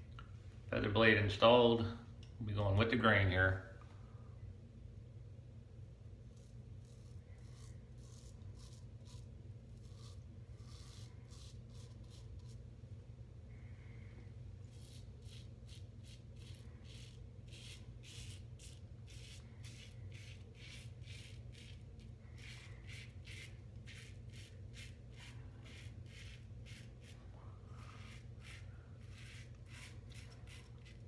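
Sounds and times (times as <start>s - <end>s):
steady low hum: 0.0s - 31.0s
razor scraping stubble: 6.3s - 12.6s, 14.6s - 27.2s, 27.8s - 31.0s.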